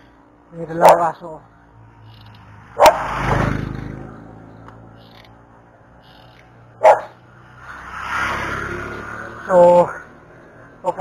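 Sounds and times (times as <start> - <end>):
dog barking: 0.8 - 1.1, 2.8 - 3.1, 6.8 - 7.2.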